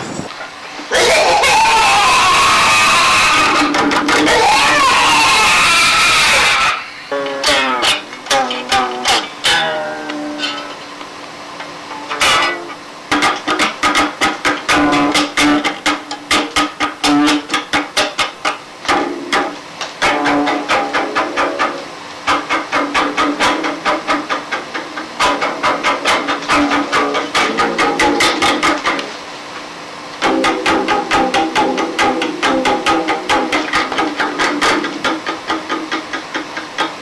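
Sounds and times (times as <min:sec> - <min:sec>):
live band music: 0:18.9 - 0:29.2, 0:30.2 - 0:36.1.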